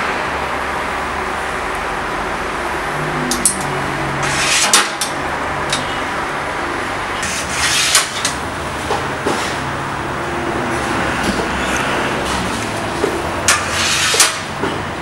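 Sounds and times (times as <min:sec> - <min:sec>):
metal rod scraping oven tray: 0:04.2 - 0:05.1, 0:07.2 - 0:08.4, 0:13.5 - 0:14.6.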